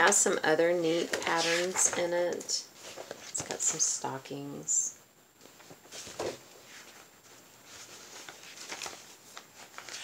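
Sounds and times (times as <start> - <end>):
paper book rustling: 0.9 - 3.9, 5.4 - 10.0.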